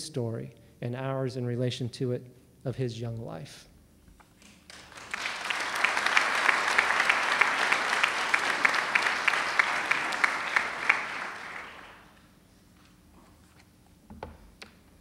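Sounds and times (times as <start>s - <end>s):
audience applauding: 4.4s - 12.2s
nearby person clapping: 4.4s - 12.2s.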